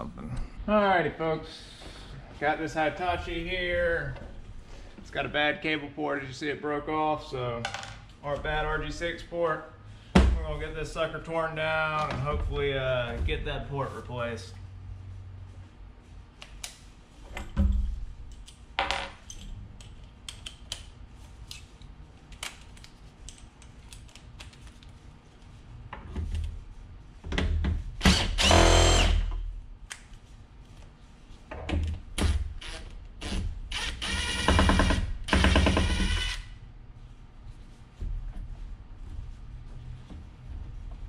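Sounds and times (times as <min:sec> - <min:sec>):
cordless drill spinning: 0:28.1 - 0:29.3, 0:32.6 - 0:34.6, 0:35.8 - 0:36.5.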